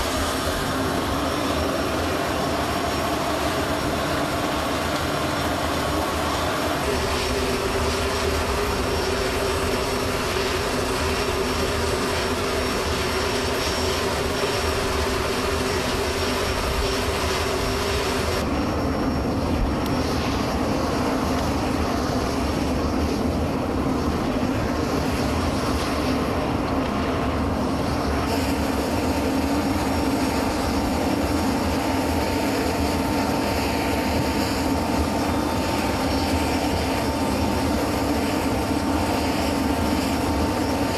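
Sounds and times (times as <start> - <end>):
aircraft engines droning: 0.0 - 40.9
steady engine whine: 0.0 - 40.9.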